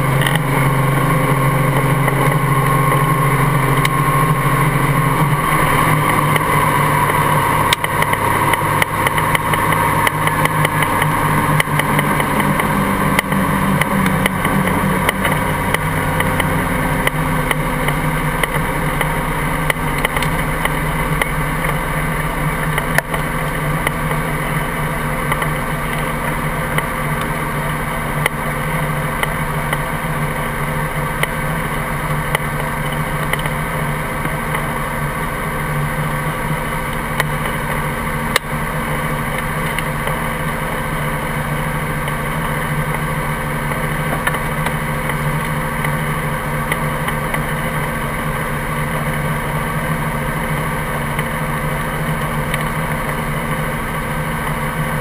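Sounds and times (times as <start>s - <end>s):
helicopter engine and rotor drone: 0.0s - 55.0s
sharp clicks: 6.1s - 21.8s.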